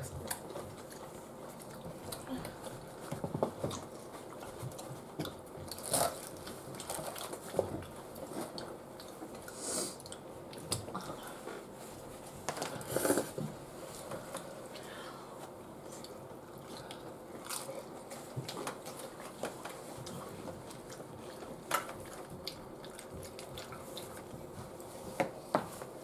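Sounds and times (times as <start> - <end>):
tortilla chips crunching: 5.7 - 7.5.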